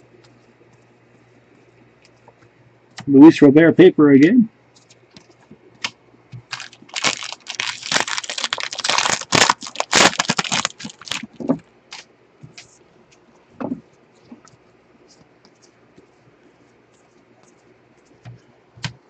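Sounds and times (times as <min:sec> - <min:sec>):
cards rustling and clicking: 0:04.8 - 0:16.1
plastic wrapper tearing and crinkling: 0:06.4 - 0:12.1.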